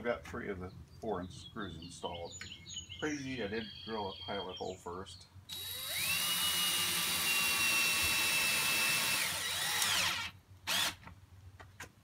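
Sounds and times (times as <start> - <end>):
cordless drill motor whine: 5.5 - 11.0.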